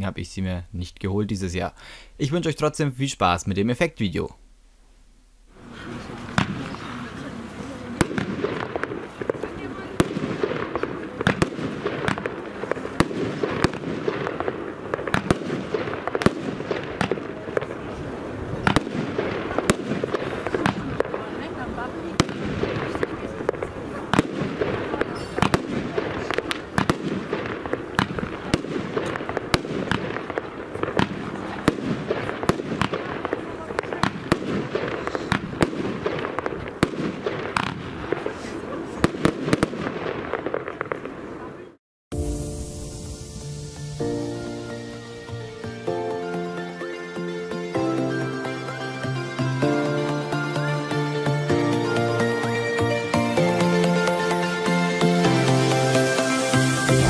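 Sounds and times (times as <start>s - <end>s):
steady background noise: 0.0s - 39.0s
fireworks bangs: 5.4s - 46.1s, 52.4s - 57.0s
continuous fireworks rumble: 5.5s - 46.1s
firework shells launching and bursting: 10.0s - 18.0s.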